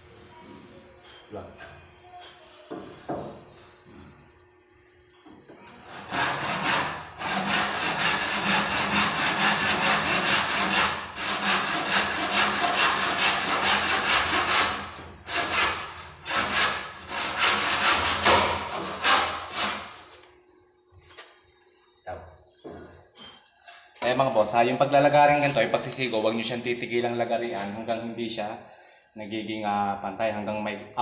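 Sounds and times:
hand saw cutting wood: 5.8 - 20.2.

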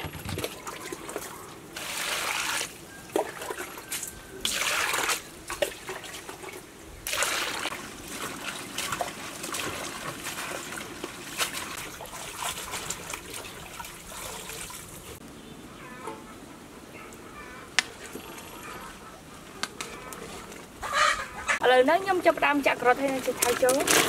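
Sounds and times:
splashing: 0.0 - 15.2, 22.3 - 24.0.

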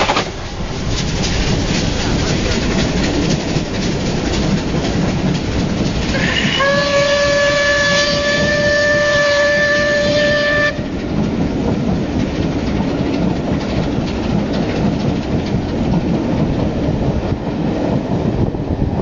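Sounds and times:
wheels clacking over rail joints: 0.0 - 18.5
train coaches rumbling past: 0.0 - 19.0
steam locomotive chord whistle: 6.1 - 10.9.

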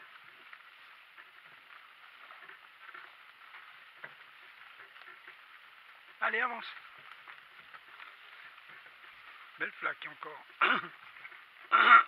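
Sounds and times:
small ticks: 0.0 - 9.6
cart wheels and hooves crunching: 0.0 - 12.0.

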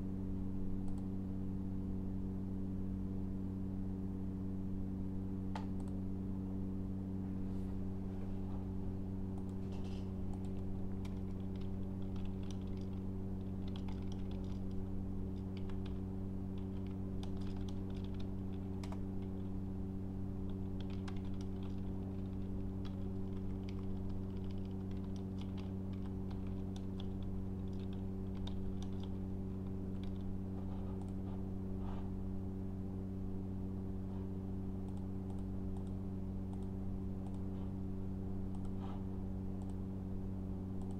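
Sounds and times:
low electrical hum: 0.0 - 40.9
keyboard typing: 10.3 - 19.5, 20.4 - 31.2.

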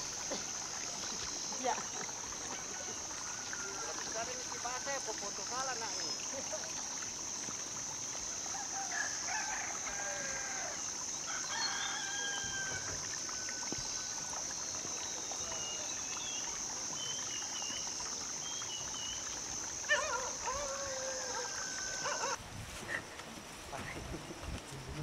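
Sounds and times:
rooster crowing: 8.5 - 13.0, 20.4 - 22.4.

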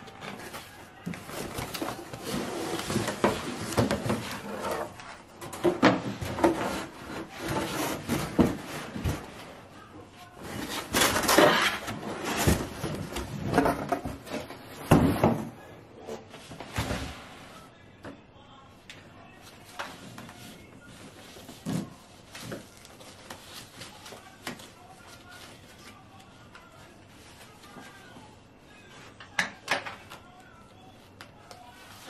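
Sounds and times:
cardboard and paper rustling: 0.0 - 15.5, 19.4 - 28.4.

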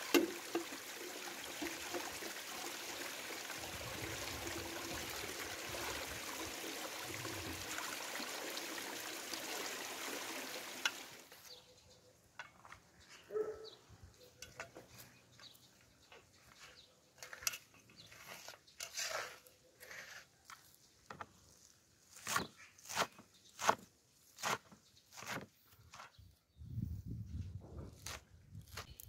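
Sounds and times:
knife cutting herbs: 27.9 - 29.0.

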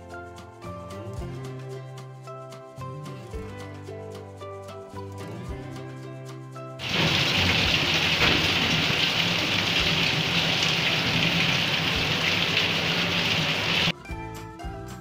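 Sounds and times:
steady rain falling: 6.8 - 13.9
water dripping off roof edge: 6.8 - 13.9.

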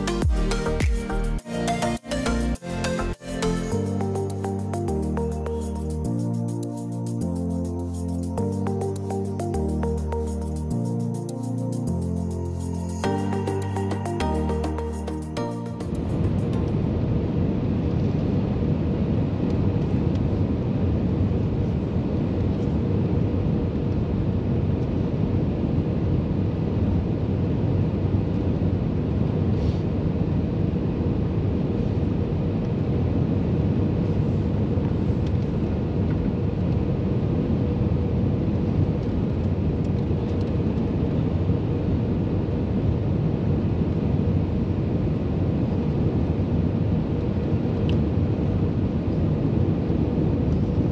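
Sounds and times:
jet engine rumble: 15.7 - 50.9.

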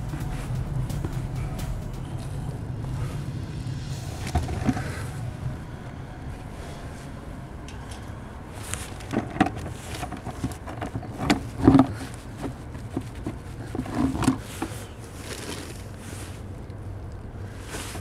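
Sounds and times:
road traffic rumble: 0.0 - 18.0
plastic bucket knocking and scraping: 4.2 - 5.0, 9.1 - 14.9.

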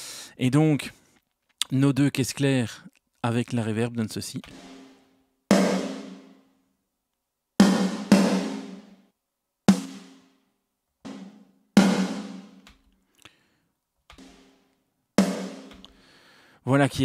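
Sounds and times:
reverberant snare drum hits: 4.5 - 6.3.

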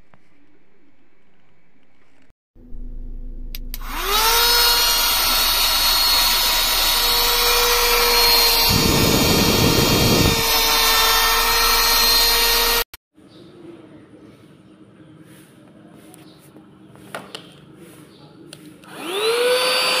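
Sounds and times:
vacuum cleaner motor whine: 3.8 - 12.8, 18.9 - 20.0.

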